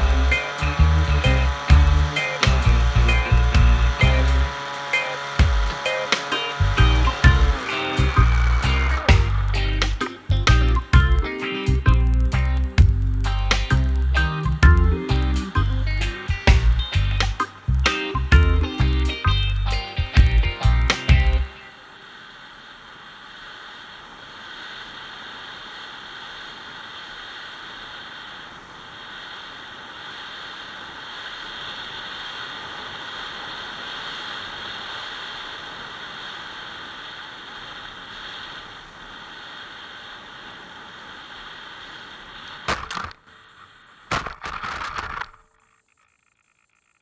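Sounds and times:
sharp knock: 42.7s - 43.2s.

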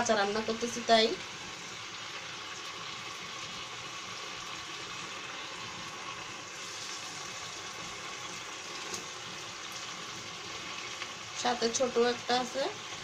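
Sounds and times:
sauce simmering and sizzling: 0.0s - 13.0s.

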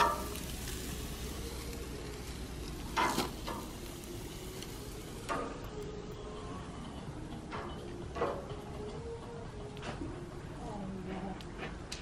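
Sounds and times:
meat sizzling on a grill: 0.0s - 5.9s.

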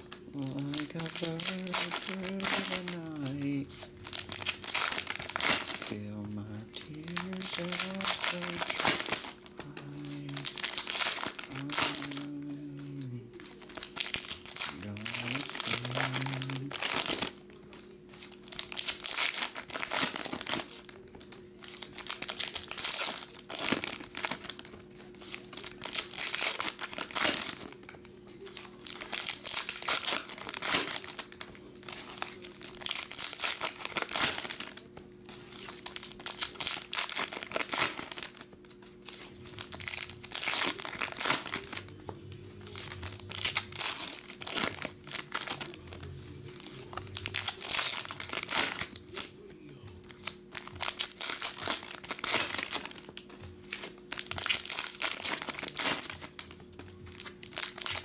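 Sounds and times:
foil wrappers tearing and crinkling: 0.0s - 42.0s, 42.7s - 49.4s, 50.0s - 58.0s
faint steady hum: 0.0s - 58.0s.

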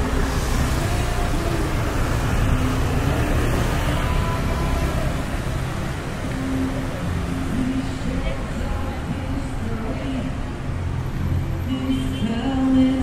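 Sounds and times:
scooters and cars passing: 0.0s - 13.0s.

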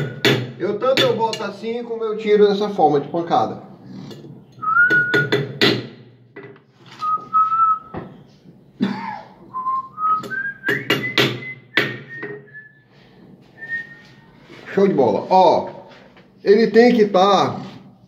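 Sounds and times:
person whistling a tune: 4.6s - 5.4s, 7.0s - 8.0s, 9.5s - 12.9s, 13.6s - 14.3s.

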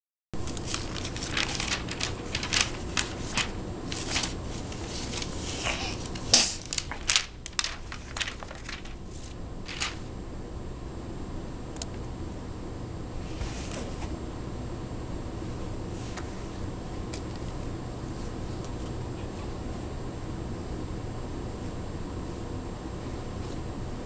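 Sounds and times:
book pages crackling and rustling: 0.4s - 10.1s
low room hum: 0.4s - 24.0s.

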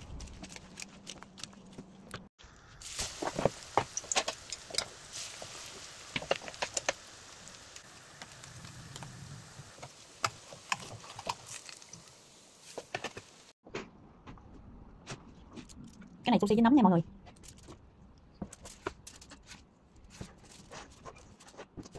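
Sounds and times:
sushi roll frying in oil: 2.4s - 13.5s.

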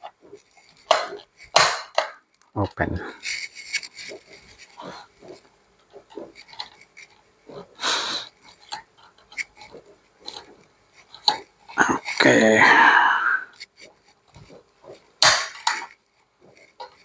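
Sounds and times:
metal tool scraping plastic: 3.2s - 7.8s, 8.4s - 12.2s.

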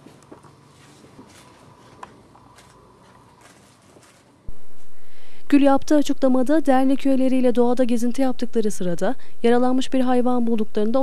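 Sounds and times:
rustling and handling noises: 0.0s - 4.9s
faint steady hum: 0.0s - 11.0s.

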